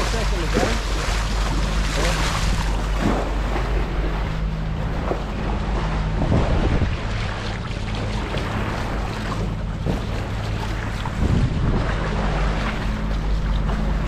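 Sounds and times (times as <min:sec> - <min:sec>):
boat engine droning: 0:00.0 - 0:14.0
water rushing along hull: 0:00.0 - 0:14.0
wind on microphone: 0:06.1 - 0:07.4, 0:10.9 - 0:12.8.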